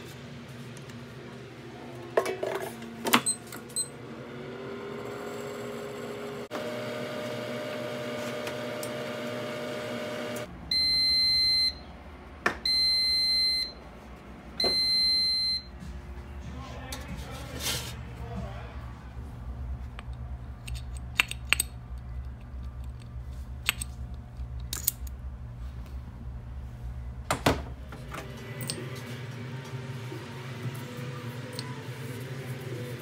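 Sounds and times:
air fryer fan whining: 0:00.0 - 0:33.0.

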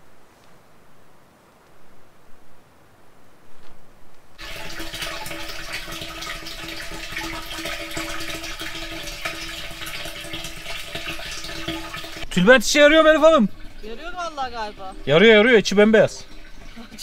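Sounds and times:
water running into a tank: 0:04.4 - 0:17.0.

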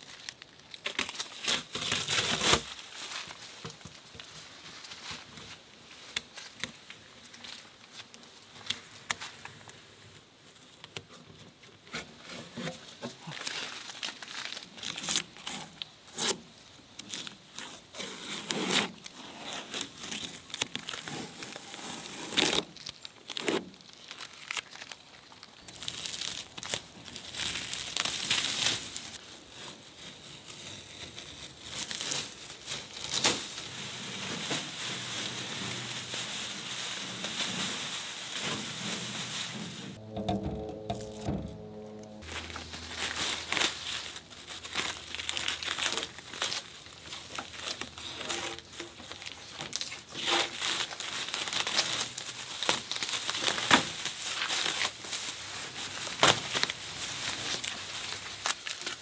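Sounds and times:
paper and plastic crumpling: 0:00.0 - 0:16.4, 0:17.0 - 0:40.0, 0:42.2 - 0:59.0
masking tape peeling: 0:17.0 - 0:25.0.

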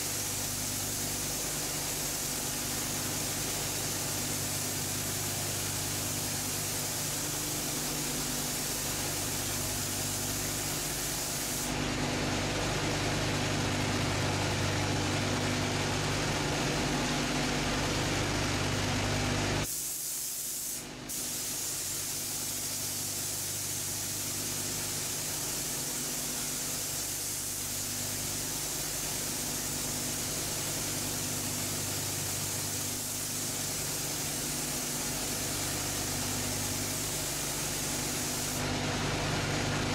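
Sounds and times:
paint spray gun hissing: 0:00.0 - 0:11.8, 0:19.6 - 0:38.7.

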